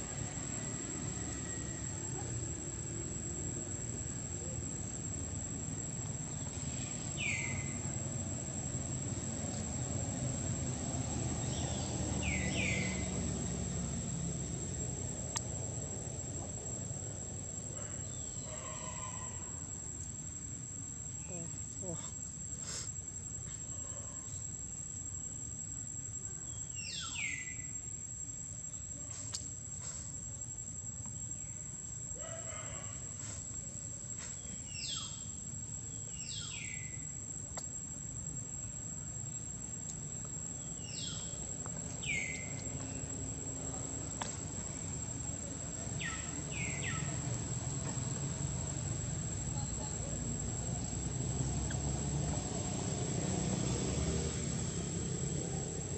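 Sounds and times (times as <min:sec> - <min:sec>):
insects droning: 0:00.0 - 0:55.9.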